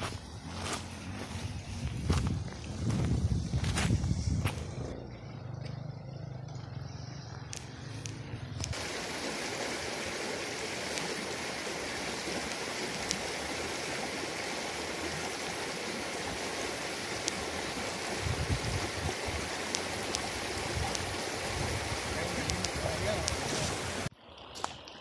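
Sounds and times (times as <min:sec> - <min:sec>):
river rushing over stones: 0:08.6 - 0:24.1.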